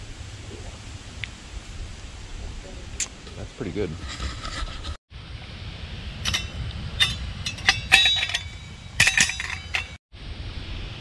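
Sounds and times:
metallic clinks of a stove: 6.2s - 10.0s.

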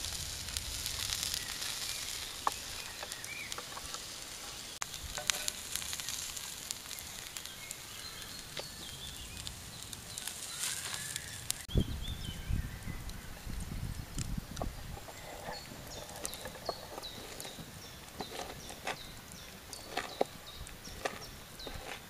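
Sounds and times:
meat and mushrooms sizzling: 0.0s - 11.8s.

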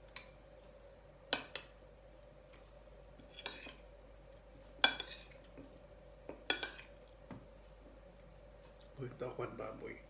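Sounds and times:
metal spoon scraping ceramic plate: 3.2s - 3.8s, 4.8s - 5.4s.

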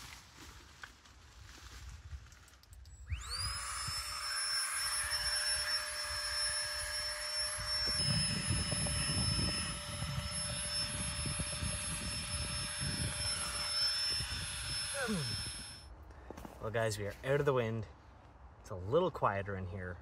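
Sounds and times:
mini air pump whining: 2.8s - 15.9s.

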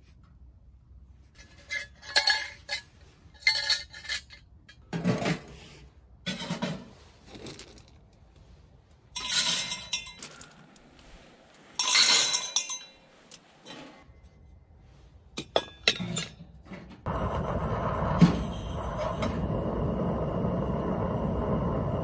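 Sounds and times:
metal parts clinking: 1.4s - 4.8s, 9.1s - 10.9s.

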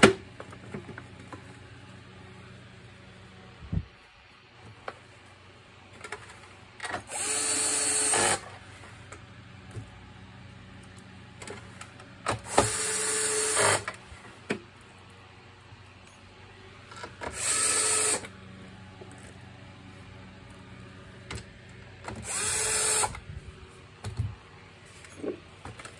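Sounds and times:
electric screwdriver whining: 6.9s - 8.5s, 12.3s - 14.0s, 17.1s - 18.3s, 22.1s - 23.2s.

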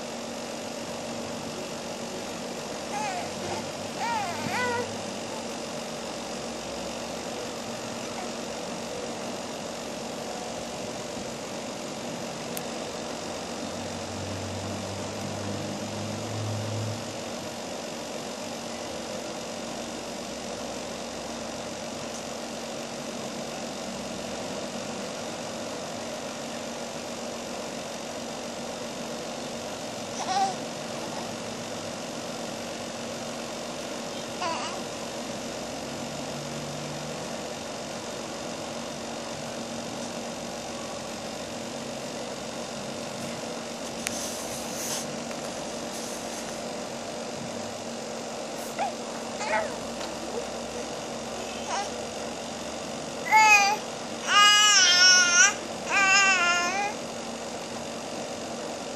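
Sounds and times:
mechanical drone with hiss: 0.0s - 58.9s
baby vocalizing: 2.9s - 4.9s, 30.2s - 30.6s, 34.4s - 34.8s, 48.7s - 49.8s.

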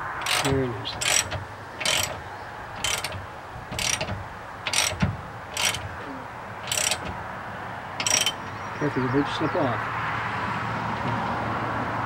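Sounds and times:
ratchet wrench clicking: 0.0s - 2.2s, 2.8s - 6.0s, 6.6s - 7.2s, 8.0s - 8.4s.

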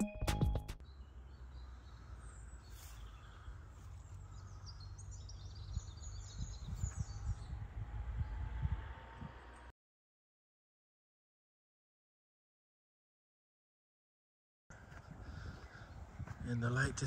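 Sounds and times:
small birds chirping: 0.8s - 8.7s, 14.7s - 17.0s
wind rumble on microphone: 5.2s - 9.7s, 14.7s - 17.0s.

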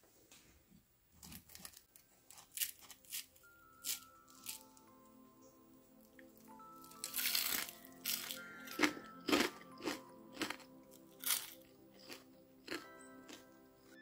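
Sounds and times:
soft background music: 0.5s - 14.0s
crunchy food being chewed: 1.2s - 4.9s, 6.0s - 14.0s.

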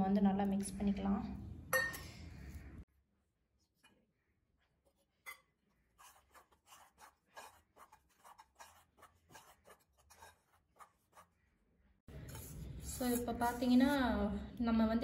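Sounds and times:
spoon scraping steel bowl: 5.1s - 11.4s, 12.1s - 14.2s.

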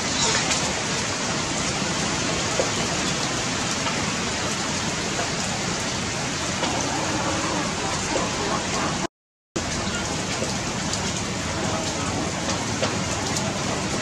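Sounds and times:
rain falling: 0.0s - 14.0s.

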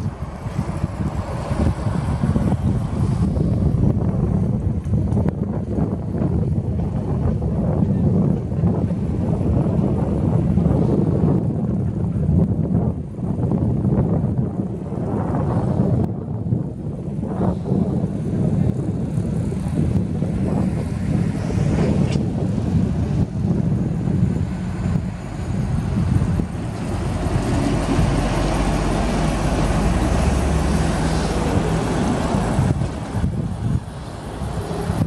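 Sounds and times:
heavy vehicles driving past: 0.0s - 4.3s, 17.7s - 35.0s.

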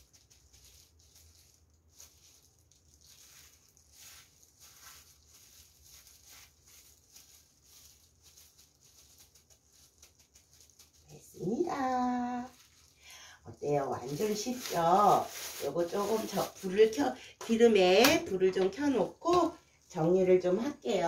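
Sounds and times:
breadcrumbs rustling and crunching: 0.0s - 21.0s
person speaking: 11.1s - 12.6s, 13.5s - 21.0s.

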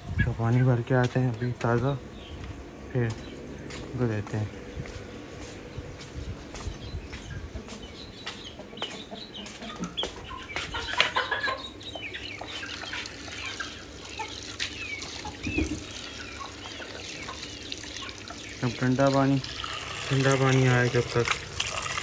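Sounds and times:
chickens clucking: 6.6s - 20.6s
water running from a tap: 12.6s - 22.0s.

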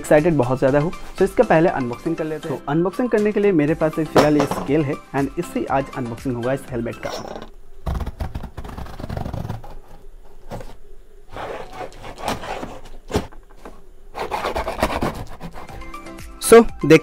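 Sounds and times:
cardboard rubbing: 7.8s - 15.9s
tape crinkling: 7.9s - 10.7s.

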